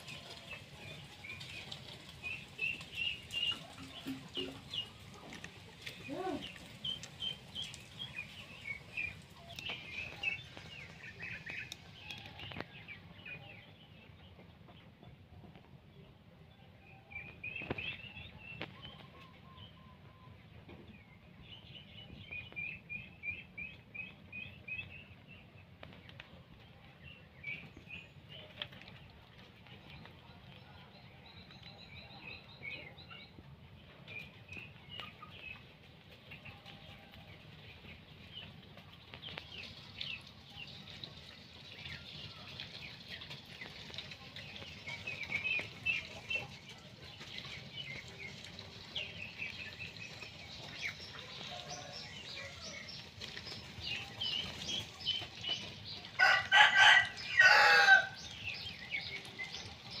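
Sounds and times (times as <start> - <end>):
chickens chirping and clucking: 0.0 - 60.0
rooster crowing: 56.2 - 58.2.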